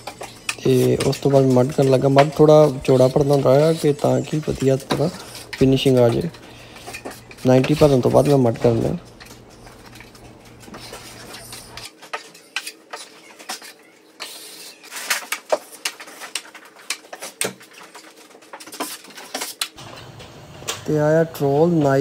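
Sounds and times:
spreading joint compound: 0:00.0 - 0:19.8
taping knife scraping metal pan: 0:00.1 - 0:09.0.

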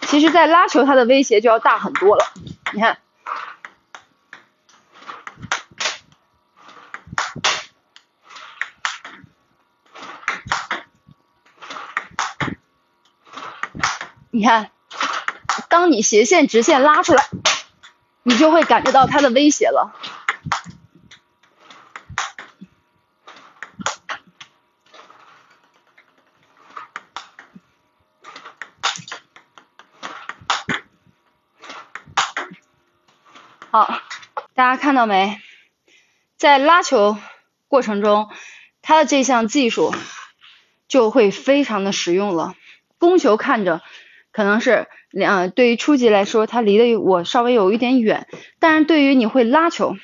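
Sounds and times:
table tennis ball clicks: 0:01.9 - 0:04.5, 0:10.1 - 0:10.9, 0:11.7 - 0:12.6.

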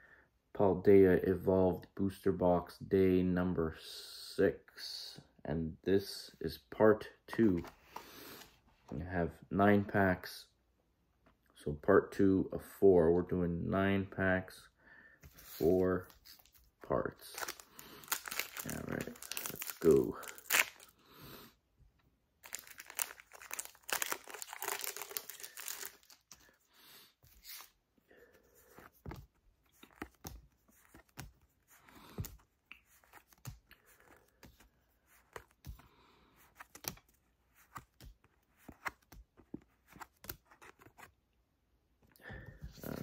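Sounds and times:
foil pack tearing open: 0:22.5 - 0:26.2
cards clicking and slapping: 0:36.6 - 0:41.1.

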